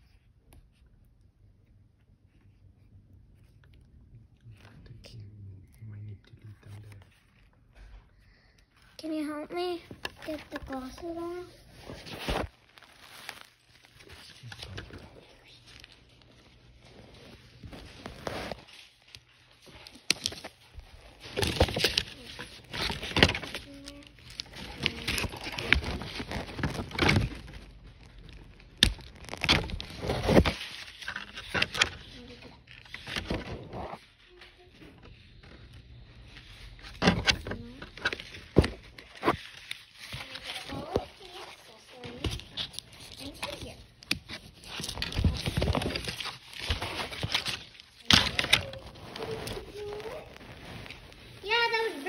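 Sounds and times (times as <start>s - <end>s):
plastic pieces rustling and clicking: 19.1s - 33.4s, 42.0s - 52.0s.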